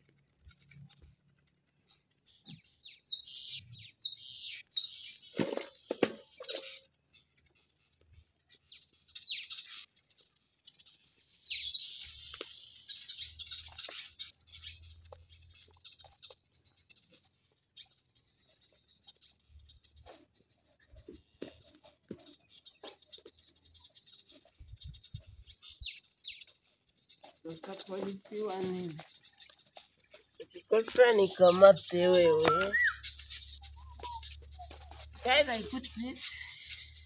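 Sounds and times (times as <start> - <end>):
wood fire crackling: 0.0 - 2.4
birds chirping: 0.0 - 37.0.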